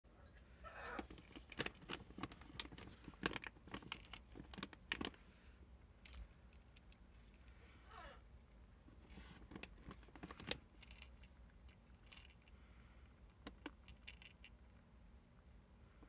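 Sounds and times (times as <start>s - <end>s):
food pellets clicking in plastic bowl: 13.3s - 14.5s.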